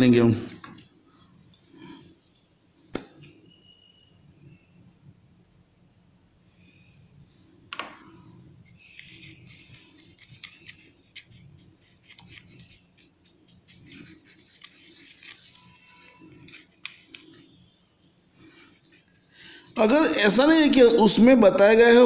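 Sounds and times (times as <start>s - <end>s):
scratchy rubbing on paper: 9.0s - 17.6s, 18.4s - 20.2s.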